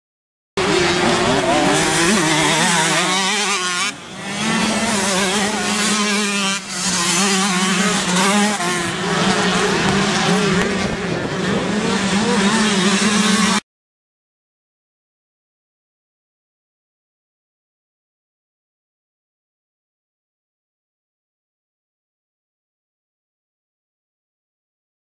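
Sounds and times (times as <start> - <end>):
motocross bikes racing: 0.6 - 13.6.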